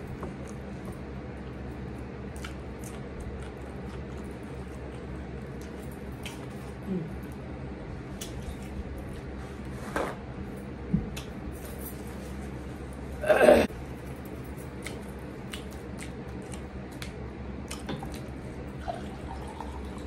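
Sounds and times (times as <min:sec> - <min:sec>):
steady low hum: 0:00.0 - 0:20.0
chewing and wet mouth sounds: 0:00.3 - 0:09.1, 0:13.8 - 0:20.0
paper napkin rustle: 0:09.0 - 0:10.2.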